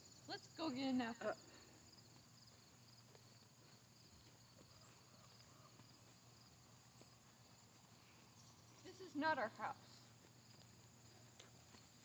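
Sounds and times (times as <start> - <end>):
crickets chirping: 0.0 - 12.0
soft ticks: 10.6 - 11.6.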